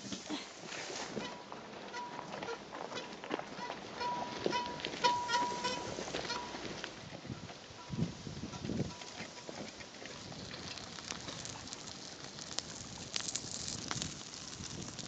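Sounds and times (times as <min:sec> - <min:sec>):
campfire crackling and popping: 0:08.7 - 0:15.0.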